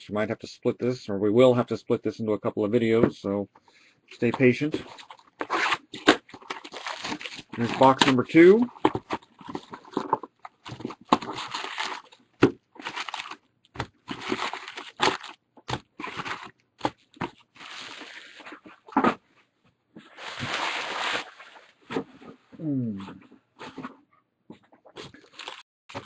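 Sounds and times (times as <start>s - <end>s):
plastic and foil crinkling: 4.2s - 18.9s, 20.1s - 21.8s, 25.0s - 26.0s
plastic wrap tearing: 4.6s - 12.2s, 12.8s - 18.5s, 20.1s - 21.7s, 25.0s - 26.0s.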